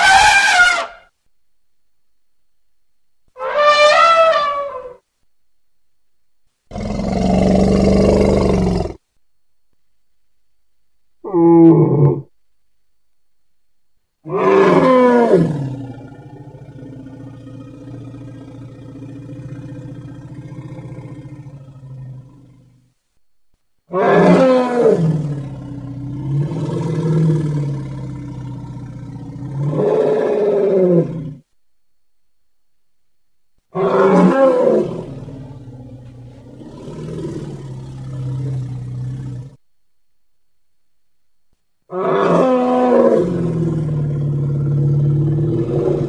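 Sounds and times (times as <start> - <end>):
elephant calling: 0.0 - 1.0, 3.4 - 5.0.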